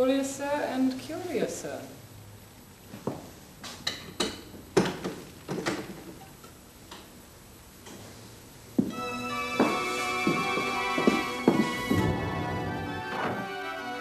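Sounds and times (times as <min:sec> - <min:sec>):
music: 0:08.9 - 0:14.0.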